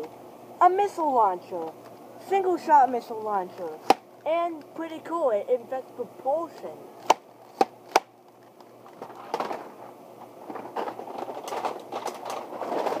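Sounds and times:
plastic toys rustling and clattering: 8.8 - 9.8, 10.4 - 13.0.

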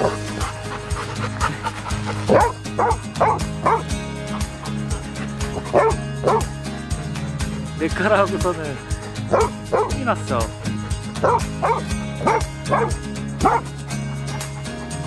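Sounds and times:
background music with steady beat: 0.0 - 15.0
dog whining yips: 9.3 - 9.9, 11.2 - 13.6.

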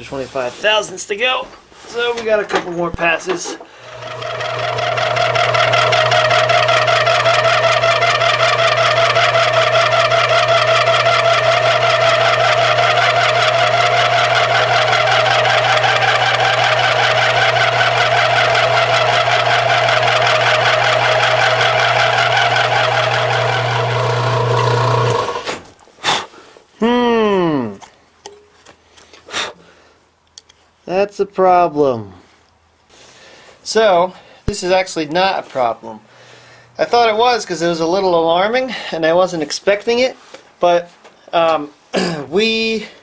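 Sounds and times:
milling machine motor hum: 3.7 - 25.6
warbling metal cutting whine: 3.9 - 25.4.

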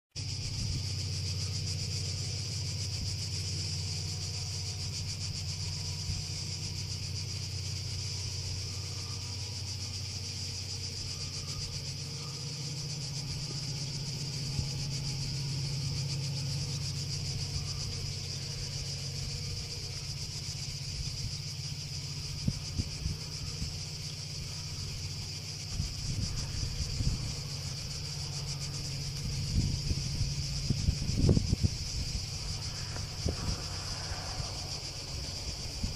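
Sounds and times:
cicadas chirring: 0.2 - 35.9
low steady drone: 0.2 - 35.9
wind on microphone: 22.2 - 35.9.

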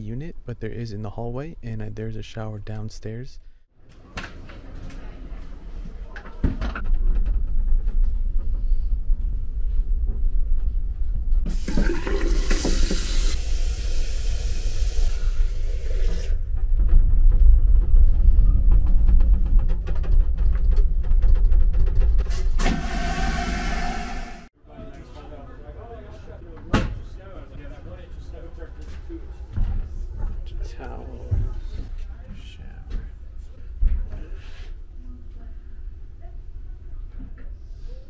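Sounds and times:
train toilet flushing whoosh: 11.5 - 16.4, 22.2 - 24.5
moving train rumble and rattle: 16.3 - 24.2.

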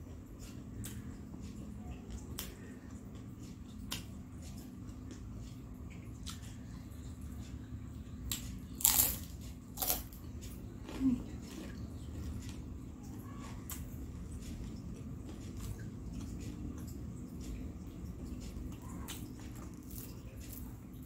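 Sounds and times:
low steady hum: 0.0 - 21.0
person chewing: 8.3 - 21.0
crunchy bite: 8.8 - 10.2.

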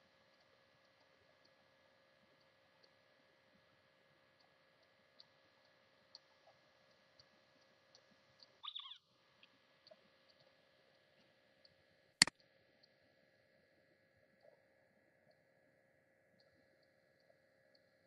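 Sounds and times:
soft ticks: 0.2 - 3.0, 4.3 - 8.6, 16.4 - 18.0.

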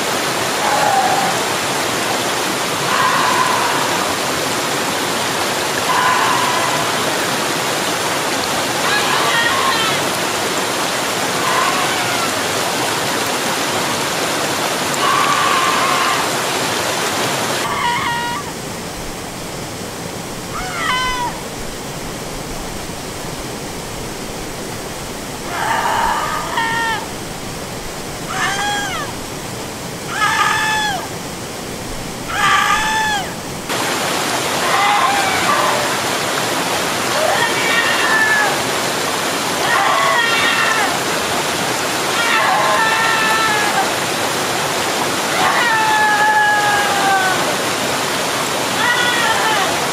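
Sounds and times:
waterfall rushing: 0.0 - 49.9
person screaming: 0.6 - 1.6, 2.8 - 4.2, 5.8 - 7.3, 8.8 - 10.1, 11.4 - 12.5, 15.0 - 16.4, 25.5 - 27.1, 28.3 - 29.1, 30.1 - 31.1, 32.3 - 33.4, 34.6 - 36.0, 37.1 - 38.6, 39.6 - 41.0, 42.1 - 44.0, 45.3 - 47.6, 48.8 - 49.8.

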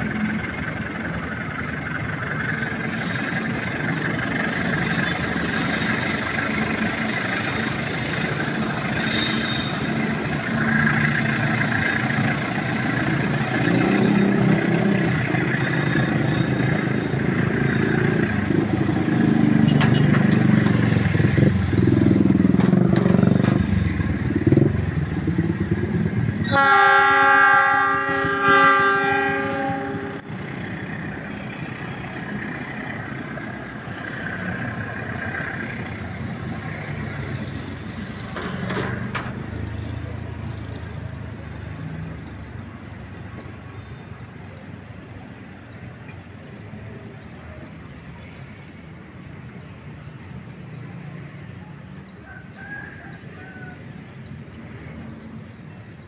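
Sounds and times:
train wheels clattering on rails: 0.0 - 24.8, 35.1 - 39.6
train horn blast: 26.4 - 30.3.

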